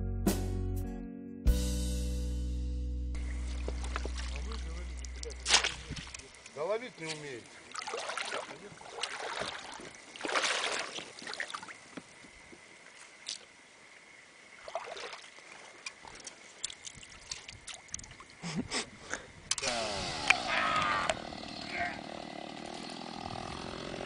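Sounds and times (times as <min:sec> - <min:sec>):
water splashing against inflatable boat: 0:03.2 - 0:11.9, 0:14.5 - 0:18.4.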